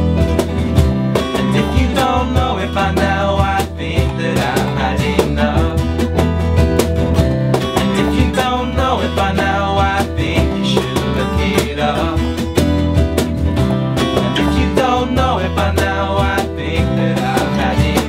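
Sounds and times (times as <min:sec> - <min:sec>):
acoustic guitars strummed: 0:00.0 - 0:18.0
keyboard chords: 0:12.0 - 0:18.0.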